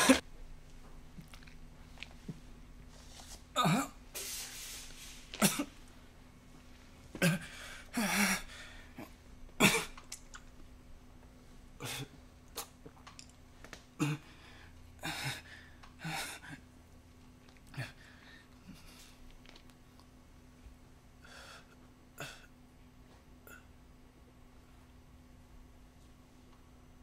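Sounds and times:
man coughing and choking: 0:00.0 - 0:00.2, 0:05.4 - 0:05.7, 0:07.2 - 0:08.4, 0:09.6 - 0:10.0.

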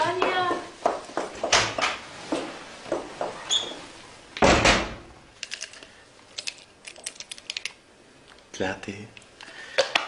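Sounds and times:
door slamming shut: 0:04.4 - 0:05.2
tablets rattling from pill bottle: 0:05.4 - 0:07.8.

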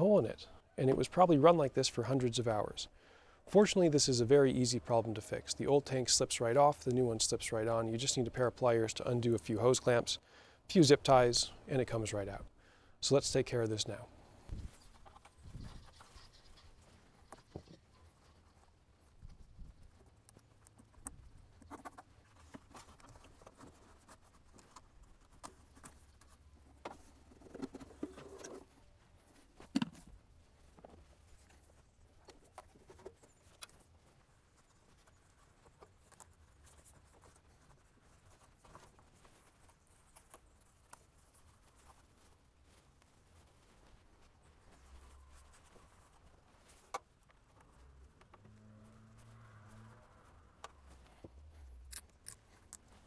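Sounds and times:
pliers on hose clamps: 0:51.8 - 0:52.9.

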